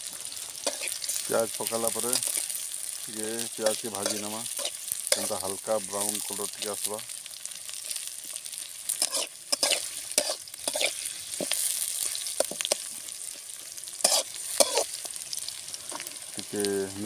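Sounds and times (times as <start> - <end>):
onions sizzling in hot oil: 0.0 - 17.0
metal spatula scraping a pot: 0.6 - 1.3, 3.7 - 5.4, 8.9 - 12.9, 14.0 - 14.9.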